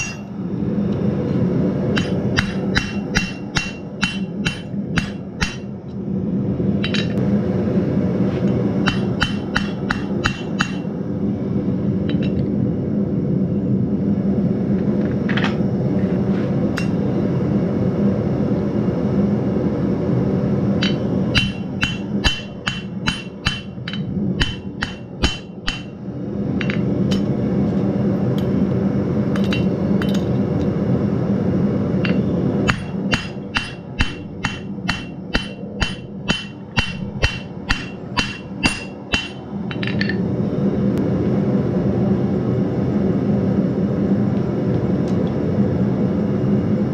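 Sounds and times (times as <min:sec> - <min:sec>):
hammer striking metal on anvil: 0:00.0 - 0:00.3, 0:01.9 - 0:05.8, 0:08.8 - 0:10.9, 0:20.8 - 0:26.0, 0:32.0 - 0:40.2
steady low drone: 0:00.0 - 0:46.9.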